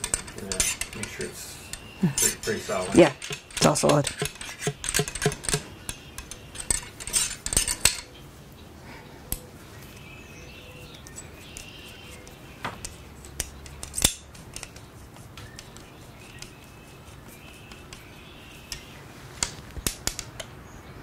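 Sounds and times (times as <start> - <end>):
ramrod tapping inside gun barrel: 0.0 - 8.0.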